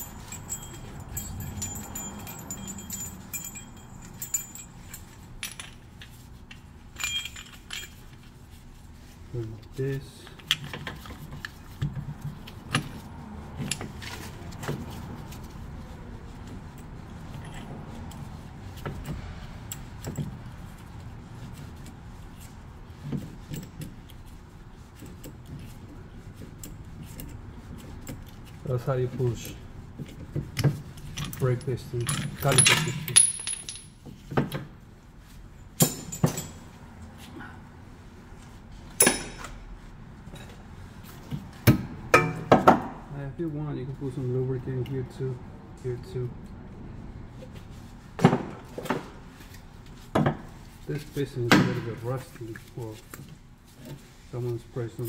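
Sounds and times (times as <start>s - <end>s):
metal tool clinking: 0.0s - 6.1s, 6.9s - 8.2s, 31.2s - 34.0s.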